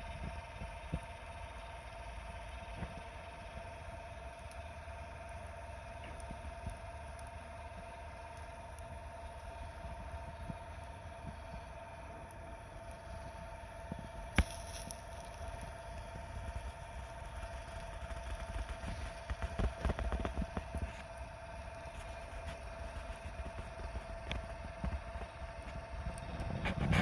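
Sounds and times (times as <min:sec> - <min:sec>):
rotisserie motor humming: 0:00.0 - 0:27.0
wood fire crackling: 0:00.0 - 0:27.0
wind rumble on microphone: 0:13.1 - 0:27.0.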